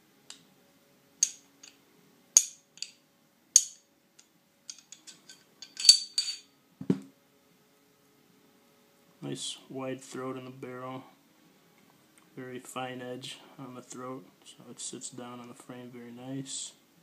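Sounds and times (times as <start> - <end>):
light metal clinks: 1.2 - 1.8, 3.6 - 6.5
dull knock: 6.8 - 7.1.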